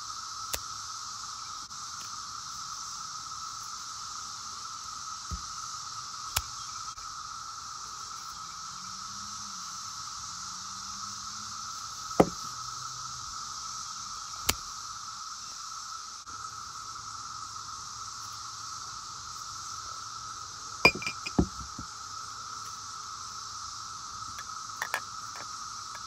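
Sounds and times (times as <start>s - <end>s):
cicadas droning: 0.0s - 26.0s
sharp knocks: 12.2s - 12.4s, 20.9s - 21.8s.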